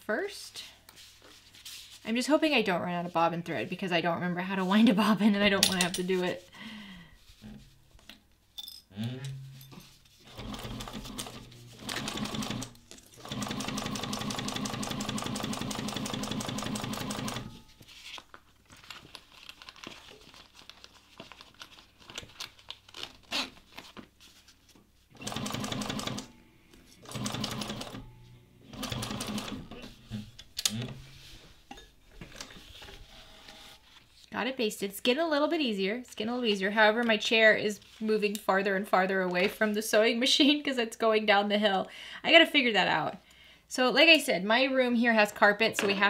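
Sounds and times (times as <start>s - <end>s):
sewing machine stitching: 10.2s - 17.6s, 25.2s - 26.3s, 27.0s - 28.1s, 28.7s - 29.9s.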